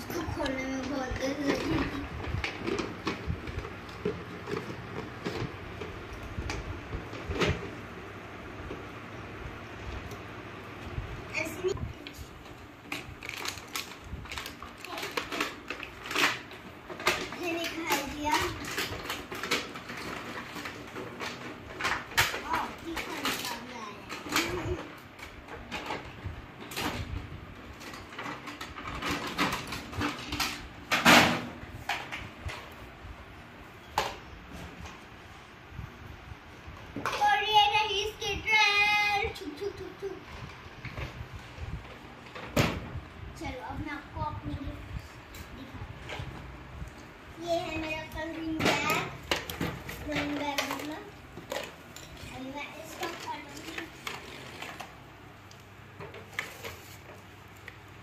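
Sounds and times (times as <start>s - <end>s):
plastic toy parts handled: 12.0s - 26.8s, 48.6s - 57.9s
plastic bag crinkling: 13.0s - 16.5s.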